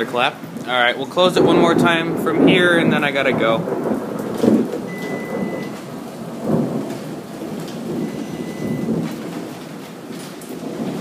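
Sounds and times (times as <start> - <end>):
rain: 0.0 - 11.0
thunder rolling: 0.0 - 11.0
faint high beeps: 4.9 - 5.8, 8.0 - 8.9.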